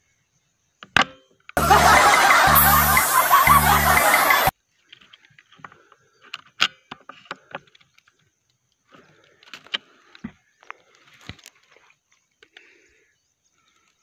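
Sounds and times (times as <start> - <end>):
loud burst of music: 1.6 - 4.5.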